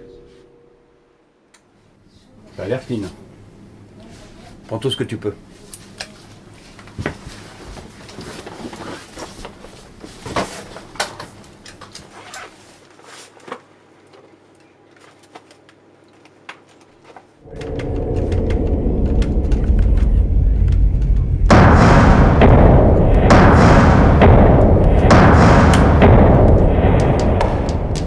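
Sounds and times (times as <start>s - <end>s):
dramatic film music: 17.4s - 28.0s.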